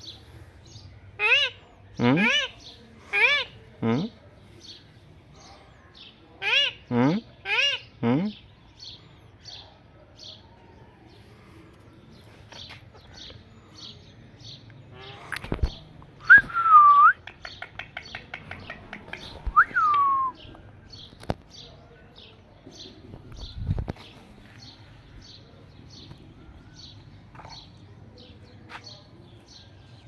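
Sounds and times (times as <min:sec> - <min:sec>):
fast clicking chatter: 0:17.2 - 0:19.5.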